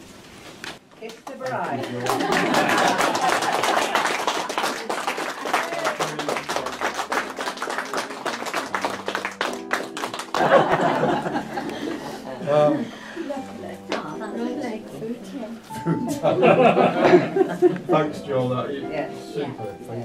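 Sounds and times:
people talking: 1.0 - 2.6
small group clapping: 1.0 - 12.3.

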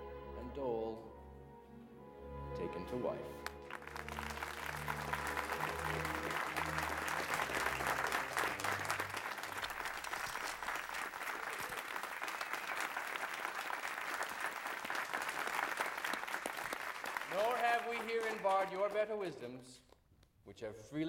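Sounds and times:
low sustained music notes: 0.0 - 9.7
audience applauding: 3.4 - 19.1.

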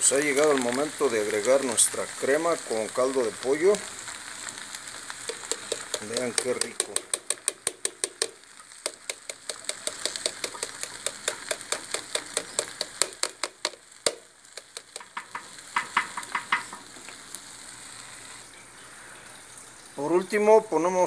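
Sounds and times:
spoon clacking against clay pot: 9.0 - 13.8.

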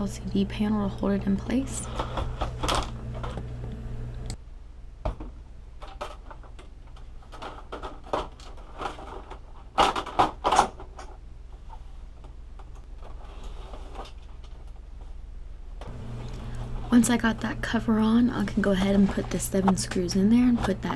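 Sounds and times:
steady low hum: 0.0 - 9.8, 10.7 - 20.9
plastic parts clicking and knocking: 5.0 - 11.2.

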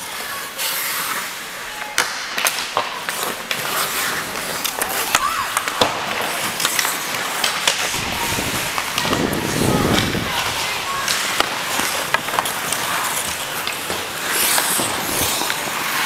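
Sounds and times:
hockey sticks clacking on puck: 0.0 - 16.0
skate blades scraping ice: 0.0 - 16.0.

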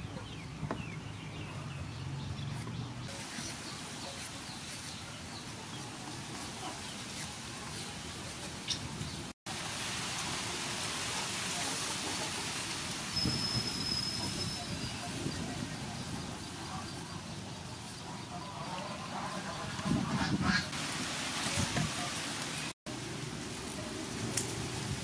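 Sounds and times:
birds chirping: 0.0 - 9.4, 12.7 - 20.7.

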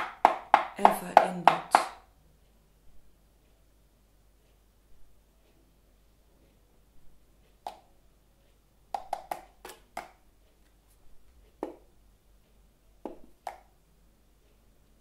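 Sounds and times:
sharp percussive taps: 0.0 - 2.1, 8.9 - 10.2, 11.6 - 11.9, 13.0 - 13.7.

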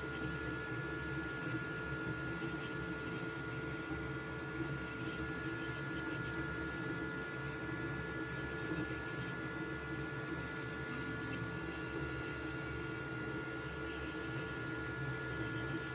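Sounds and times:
printer motors and fans whirring: 0.0 - 15.9.

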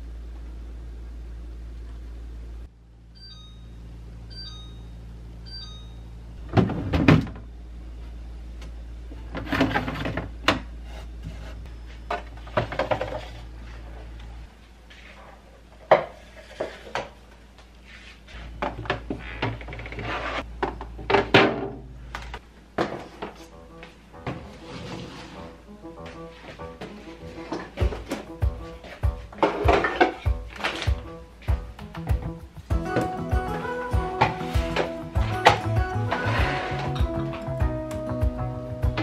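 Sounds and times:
low hum: 0.0 - 14.9
electronic beep: 3.2 - 6.2
containers clattering on wood: 29.4 - 31.0.

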